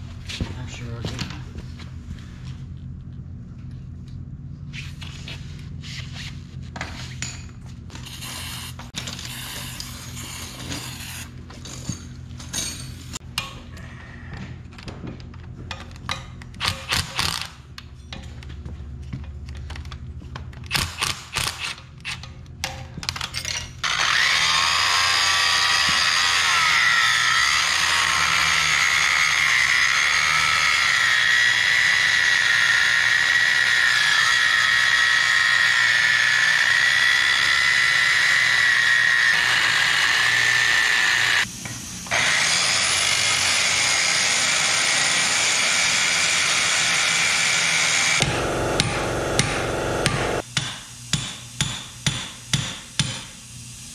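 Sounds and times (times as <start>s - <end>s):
angle grinder cutting steel: 23.8s - 41.5s, 42.1s - 50.4s.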